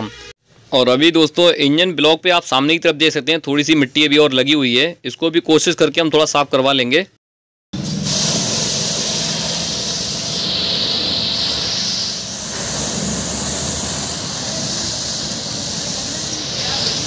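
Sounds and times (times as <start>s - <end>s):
high-pressure water jet spraying metal: 7.8s - 17.0s.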